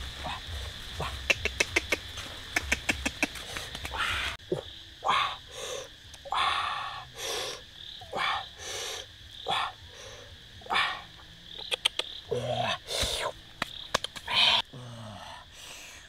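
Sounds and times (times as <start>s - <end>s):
quick run of clicks: 1.2s - 4.2s, 13.6s - 14.3s.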